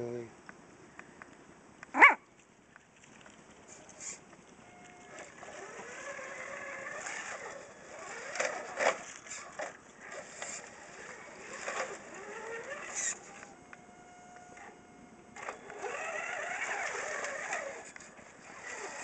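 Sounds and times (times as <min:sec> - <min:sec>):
electric motor and gears whining: 0:04.6 - 0:19.0.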